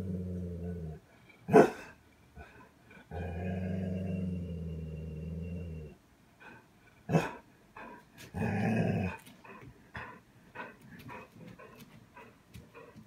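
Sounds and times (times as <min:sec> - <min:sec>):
dog growling: 0:00.0 - 0:13.0
dog barking: 0:01.5 - 0:01.9, 0:07.1 - 0:07.4.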